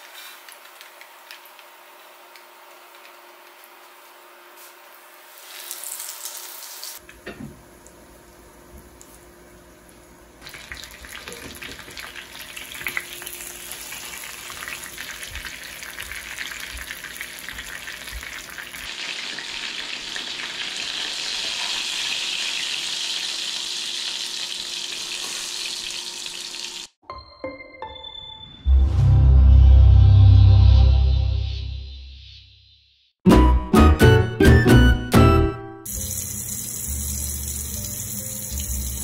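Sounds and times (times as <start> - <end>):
food sizzling in a pan: 4.6 - 7.0, 10.5 - 27.0, 35.9 - 39.0.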